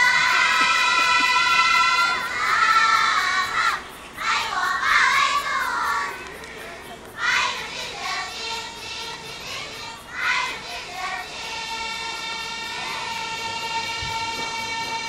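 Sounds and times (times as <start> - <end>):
young girls' voices together: 0.0 - 11.5.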